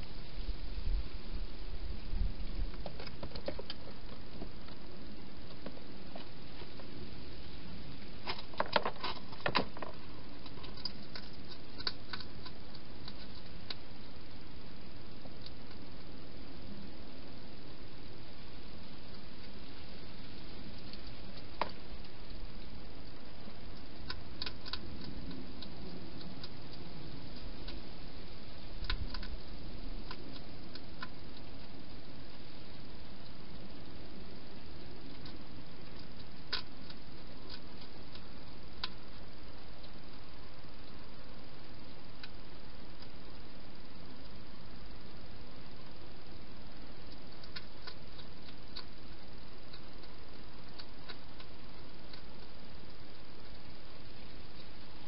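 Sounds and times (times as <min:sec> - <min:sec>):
steady hiss: 0:00.0 - 0:55.0
hedgehog eating clicks and crunches: 0:08.2 - 0:14.2, 0:20.4 - 0:27.9, 0:28.7 - 0:45.2, 0:45.9 - 0:55.0.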